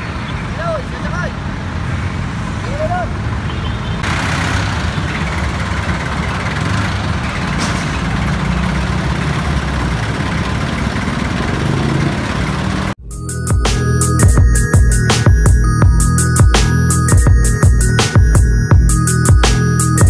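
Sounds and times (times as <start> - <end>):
heavy engine rumbling: 0.0 - 20.0
outdoor machinery noise: 3.6 - 13.0
electronic music with heavy beat: 13.0 - 20.0.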